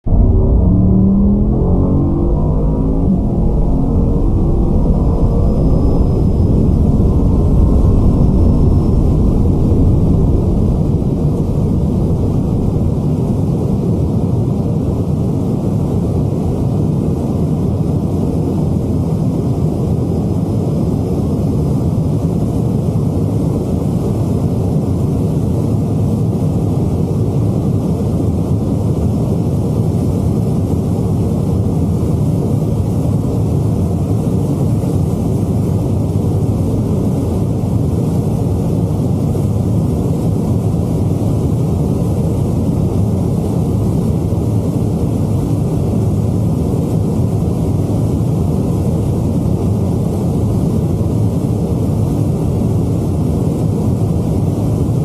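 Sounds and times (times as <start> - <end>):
rising engine tones: 0.0 - 13.9
car engine at full throttle: 0.0 - 14.0.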